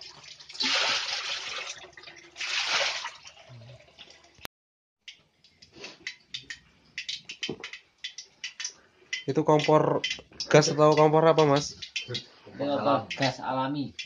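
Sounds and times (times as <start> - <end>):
water splashing into plastic basin: 0.0 - 4.4
light clicks and taps: 5.1 - 12.3.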